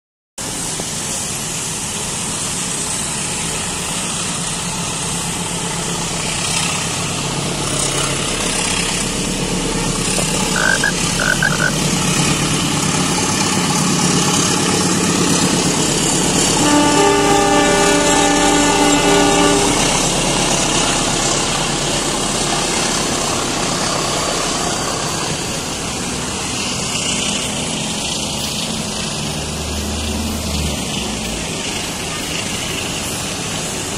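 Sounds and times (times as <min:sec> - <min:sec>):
passenger train passing: 0:00.4 - 0:33.9
wet road traffic: 0:00.4 - 0:33.9
short high beeps: 0:10.2 - 0:11.7
horn sounding: 0:10.2 - 0:11.8, 0:16.5 - 0:20.1.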